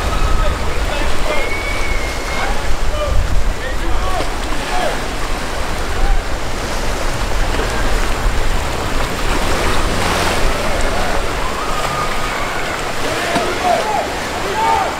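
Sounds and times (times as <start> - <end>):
wind buffeting microphone: 0.0 - 13.7
water splashing around a boat: 0.0 - 14.9.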